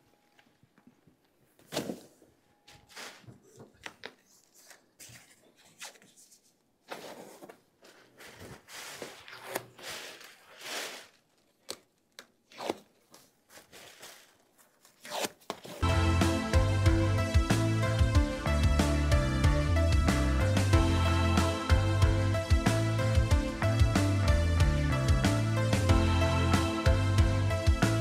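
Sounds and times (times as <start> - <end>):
plastic wrap rustling: 2.8 - 15.8.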